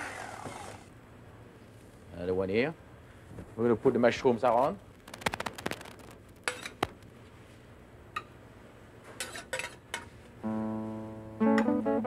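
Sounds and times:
plucked acoustic guitar note: 0:10.4 - 0:12.0.

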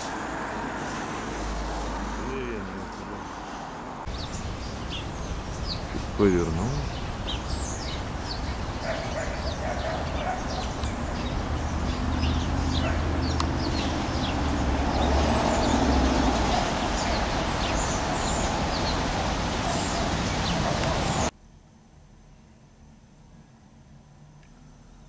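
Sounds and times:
low traffic rumble: 0:00.0 - 0:21.3
high falling bird chirps: 0:04.1 - 0:21.3.

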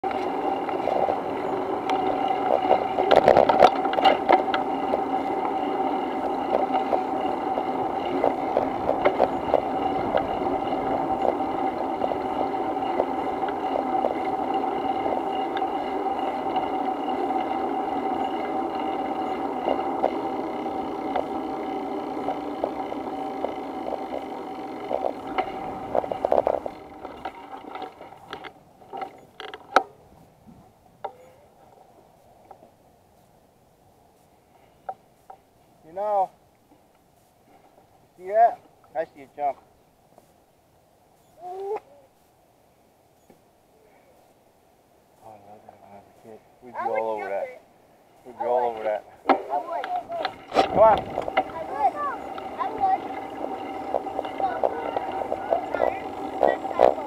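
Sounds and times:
electric motor whine: 0:00.0 - 0:29.2, 0:49.5 - 0:57.0
rattles and clicks over pavement: 0:00.0 - 0:42.4, 0:45.1 - 0:57.0.

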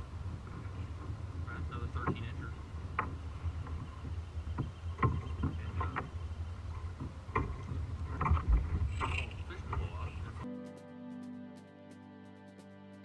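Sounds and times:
boat rumbling on water: 0:00.0 - 0:10.5
light knocks and taps in kayak: 0:00.2 - 0:10.4.

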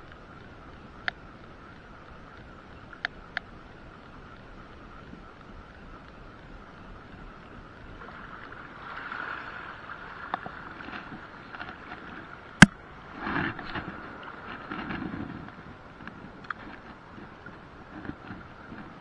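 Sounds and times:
water lapping and splashing: 0:07.7 - 0:19.0.

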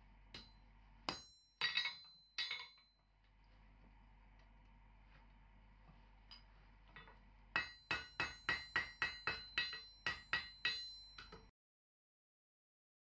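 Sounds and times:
hammer striking metal on anvil: 0:00.4 - 0:02.9, 0:06.3 - 0:11.5.

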